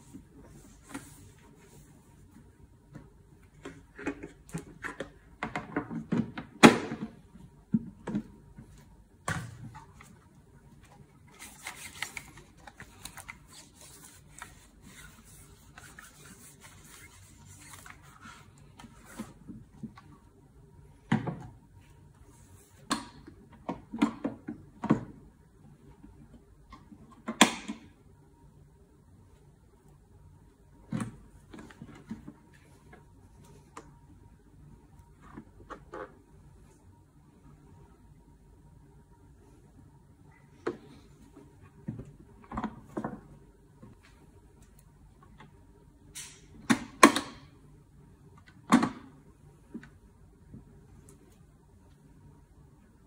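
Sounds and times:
cloth rubbing on plastic: 13.5 - 18.5.

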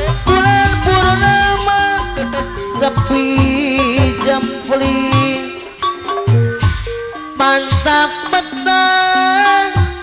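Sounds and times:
woman singing: 0.0 - 6.0, 7.4 - 10.0
drum strokes sliding in pitch: 0.0 - 6.1
accompanying ensemble: 0.2 - 6.1.

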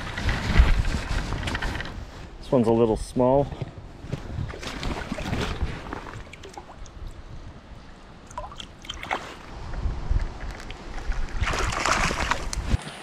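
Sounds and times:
wind rumble on microphone: 0.0 - 8.2, 9.3 - 13.0
river water sloshing and gurgling: 3.9 - 13.0.

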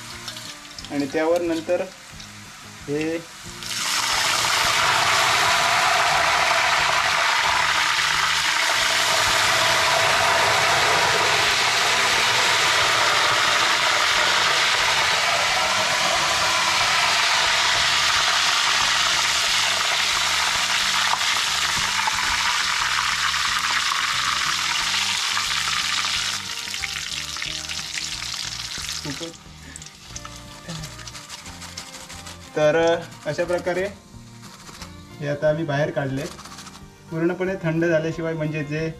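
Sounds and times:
oil bubbling and sizzling: 0.0 - 32.6.

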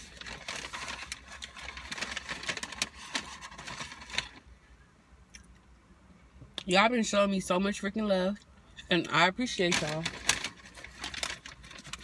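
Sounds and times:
paper packaging crackling: 0.0 - 4.4, 9.4 - 12.0.

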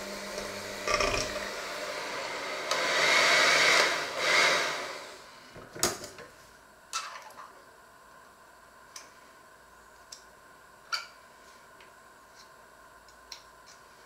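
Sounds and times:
electric hand mixer running: 0.0 - 5.3.

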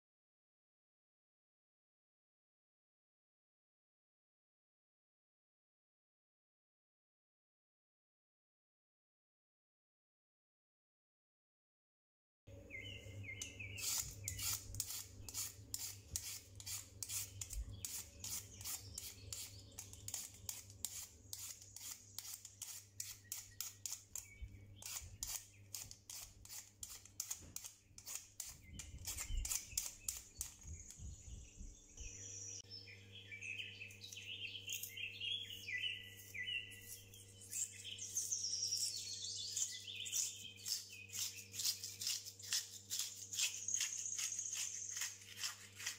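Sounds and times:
bird-like chirping: 12.5 - 45.4
peeler scraping potato: 13.2 - 31.3, 36.2 - 45.9.

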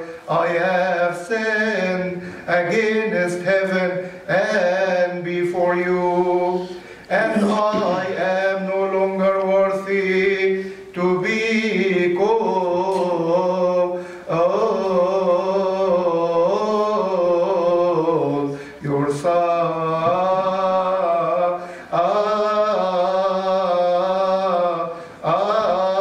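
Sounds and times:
man chanting: 0.0 - 26.0
man breathing: 2.2 - 2.5, 4.0 - 4.3, 6.7 - 7.1, 10.6 - 10.9, 14.0 - 14.3, 18.5 - 18.8, 21.6 - 21.9, 24.9 - 25.2.

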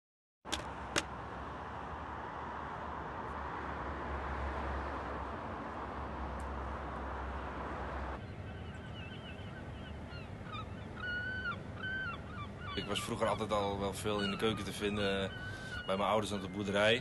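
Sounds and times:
birds calling short cries: 8.2 - 17.0.

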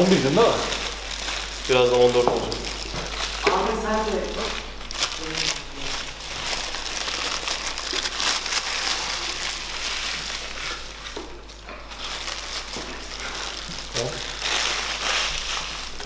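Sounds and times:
paper wrappers rustling: 0.0 - 16.0.

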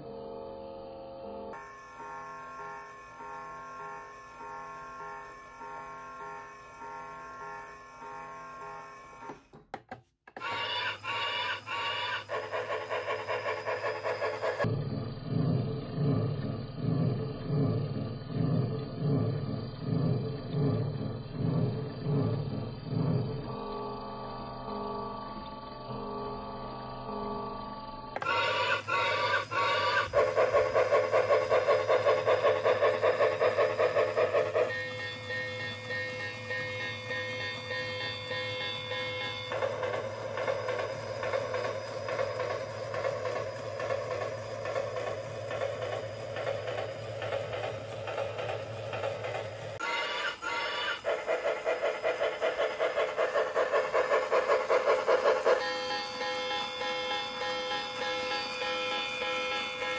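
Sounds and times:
steam chuffing: 10.4 - 23.6, 28.2 - 59.9
train whistle blasts: 28.2 - 30.4, 34.5 - 40.5, 49.8 - 51.4, 55.5 - 59.9.

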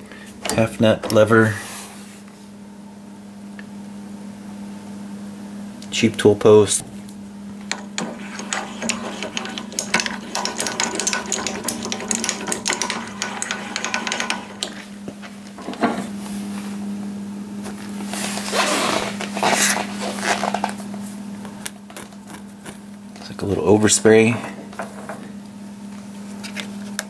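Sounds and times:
metal clicks and rattles: 7.7 - 14.8
handwheel scraping: 8.0 - 14.9.

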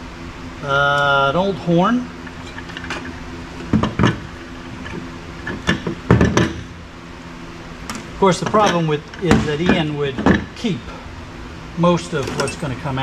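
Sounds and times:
metal parts clanking in toolbox: 2.3 - 3.2, 12.2 - 12.8.

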